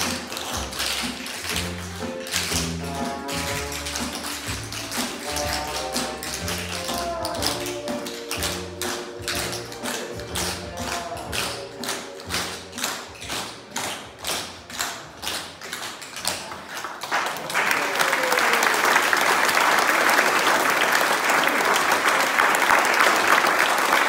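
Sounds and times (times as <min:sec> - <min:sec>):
audience applause: 0:16.4 - 0:24.0.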